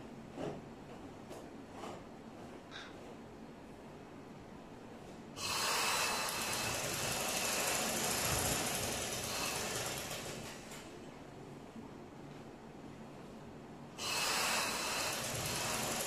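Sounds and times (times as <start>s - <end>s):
sewing machine running: 5.6s - 10.8s, 14.2s - 16.0s.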